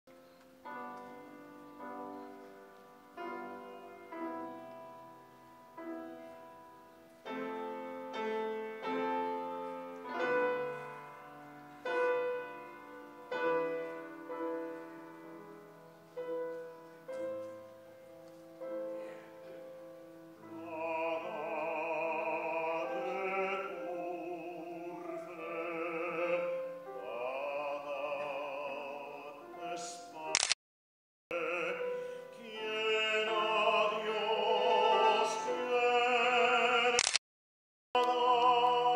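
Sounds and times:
piano chords: 0.1 - 30.3, 31.3 - 37.0
baritone singing with vibrato: 20.4 - 30.4, 31.3 - 37.0, 38.0 - 38.9.

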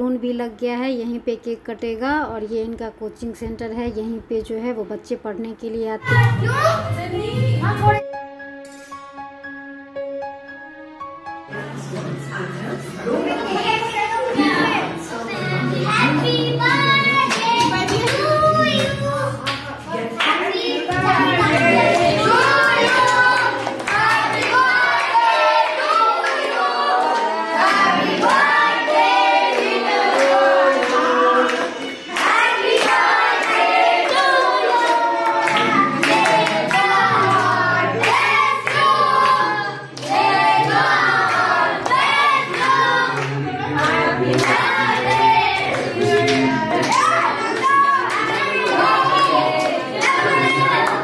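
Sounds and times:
voices singing together: 13.5 - 51.0
hands clapping: 17.2 - 20.4, 21.0 - 28.5, 29.5 - 51.0.

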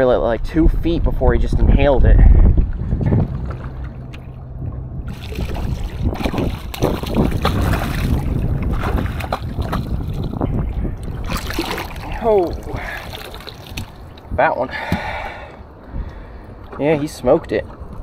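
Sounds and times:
wind buffeting microphone: 0.0 - 18.0
fish thrashing and splashing: 5.1 - 14.4.

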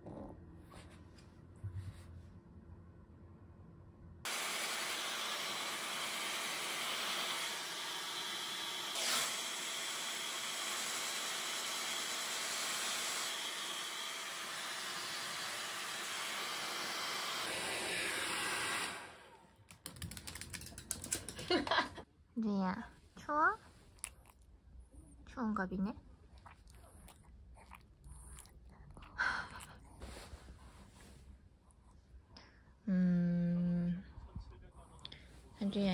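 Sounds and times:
hair dryer blowing: 4.3 - 19.5.

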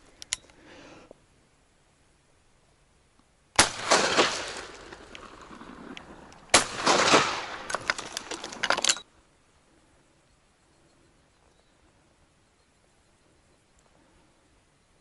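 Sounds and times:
shotgun shots echoing: 3.6 - 8.1.

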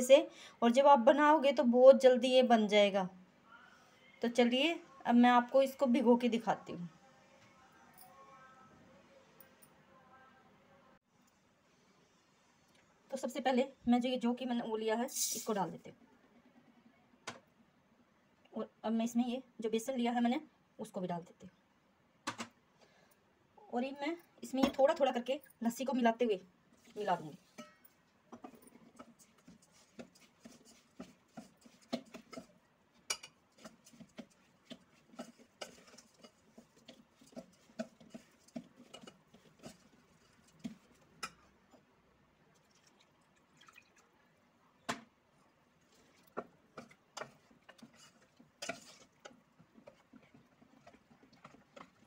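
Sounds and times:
spoon clinking and scraping in bowl: 33.1 - 41.8, 46.8 - 52.0.

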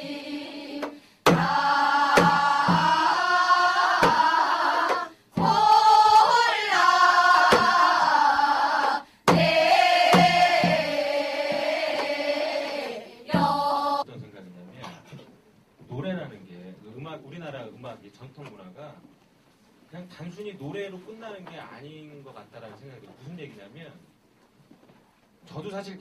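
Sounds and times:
hourglass drum strokes: 0.0 - 14.0
women and children singing: 0.0 - 14.0.

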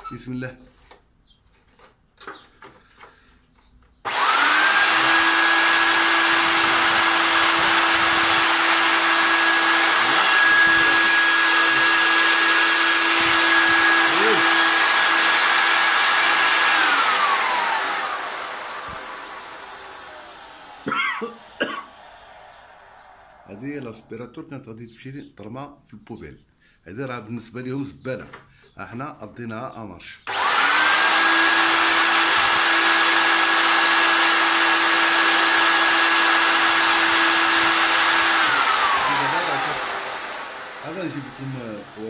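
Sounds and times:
vacuum cleaner running: 4.1 - 23.9, 30.3 - 42.0.

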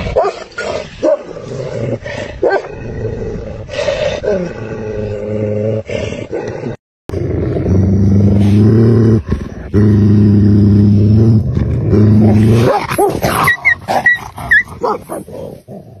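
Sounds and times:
deep animal growling: 0.0 - 13.5
snarling and high yelps: 12.5 - 15.4.

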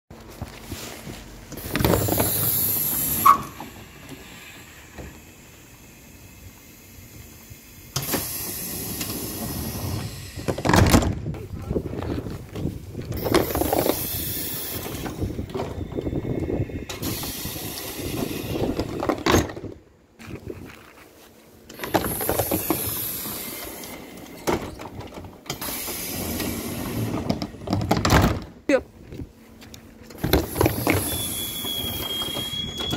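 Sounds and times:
train door drive hissing: 1.5 - 11.1, 13.1 - 19.7, 21.7 - 28.5, 30.1 - 32.9.

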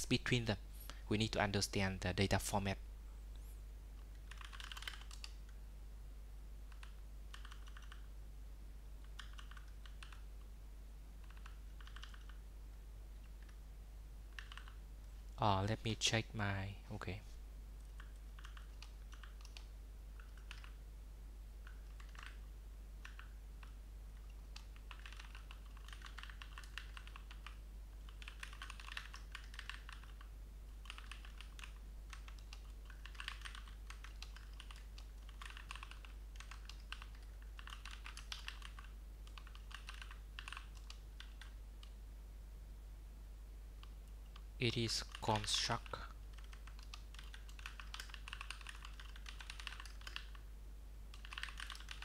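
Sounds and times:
computer keyboard typing: 4.1 - 5.5, 6.7 - 8.1, 9.0 - 10.3, 11.2 - 12.4, 13.2 - 13.6, 14.3 - 14.8, 17.8 - 20.8, 21.6 - 42.0, 43.8 - 50.4, 51.1 - 52.0.

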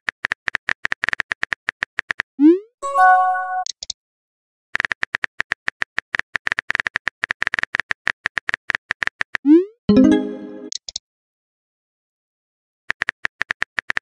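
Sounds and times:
chiming message tone: 2.8 - 3.7, 9.9 - 10.7.

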